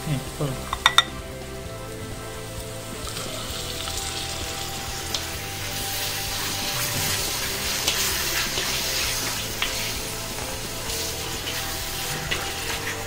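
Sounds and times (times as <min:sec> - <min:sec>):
chicken sizzling in hot oil: 0:00.0 - 0:13.0
spatula scraping and knocking pan: 0:00.7 - 0:01.2, 0:04.6 - 0:13.0.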